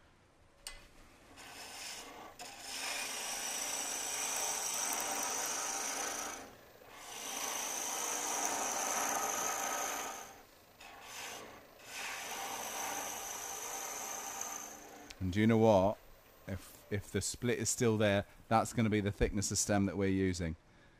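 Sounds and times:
lathe tool scraping wood: 0:01.1 - 0:15.8.

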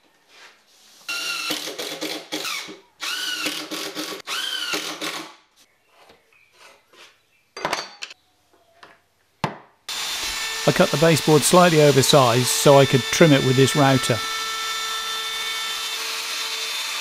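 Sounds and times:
impact driver whining: 0:09.9 - 0:15.8.

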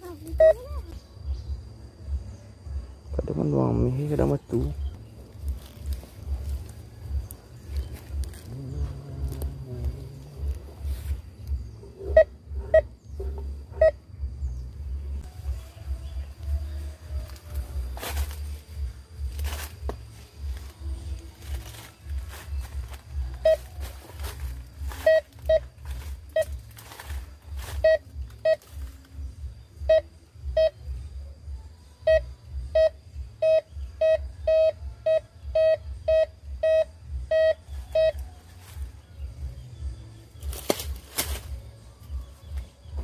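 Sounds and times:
metal detector beeping: 0:00.3 - 0:00.8, 0:21.5 - 0:26.7, 0:27.7 - 0:28.9, 0:29.8 - 0:30.8, 0:32.1 - 0:38.3.

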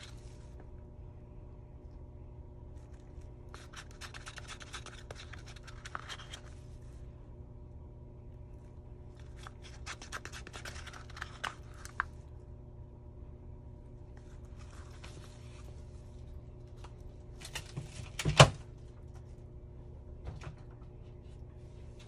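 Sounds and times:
steady low hum: 0:00.0 - 0:22.0
stir stick scraping resin in cup: 0:02.8 - 0:06.6, 0:09.2 - 0:12.1.

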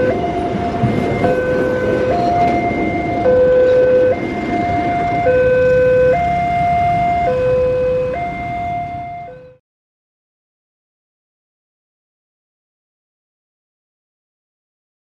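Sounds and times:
level crossing two-tone alarm: 0:00.0 - 0:09.6
passing train rumble: 0:00.0 - 0:09.6.

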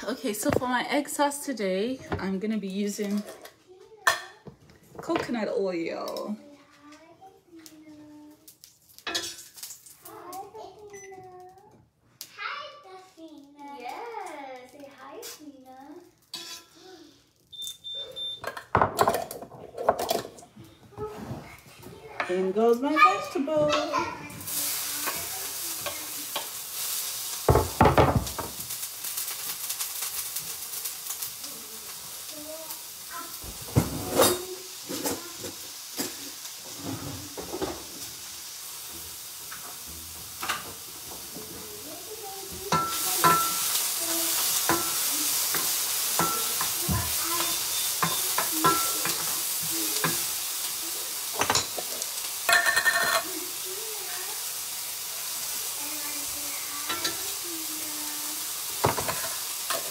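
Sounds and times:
vegetables sizzling in pan: 0:00.0 - 0:59.9
knocks and scrapes against pan: 0:33.4 - 0:37.9.

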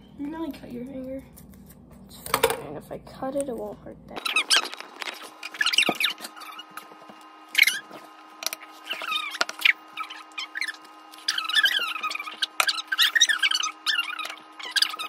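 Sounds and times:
faint steady hum: 0:00.0 - 0:15.0
short high-pitched squeaks: 0:08.8 - 0:15.0.

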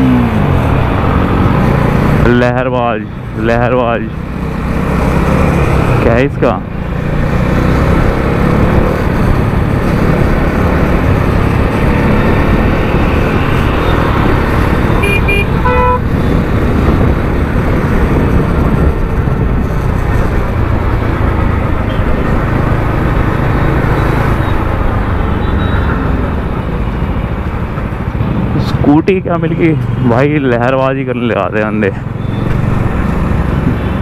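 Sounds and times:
motorcycle engine and wind rumble: 0:00.0 - 0:34.0
vehicle horn short beeps: 0:15.0 - 0:16.0.

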